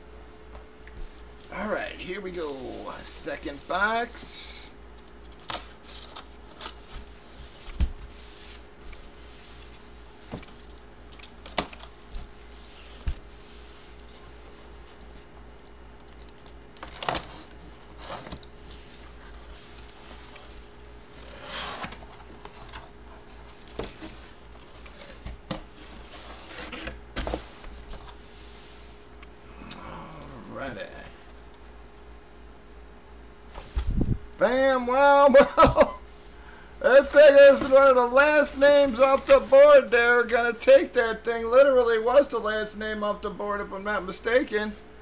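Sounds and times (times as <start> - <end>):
faint steady hum: 0.0 - 45.0
plastic sheets rustling: 36.8 - 40.0.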